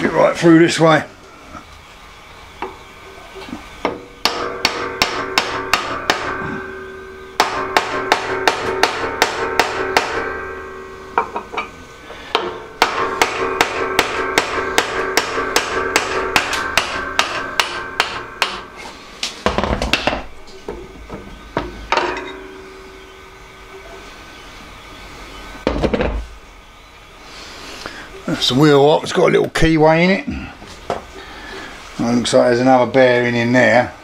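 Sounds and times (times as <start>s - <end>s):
hammer striking metal drift: 3.8s - 20.4s, 21.6s - 23.7s
scattered knocks: 7.4s - 10.4s, 12.3s - 18.6s, 19.4s - 22.6s.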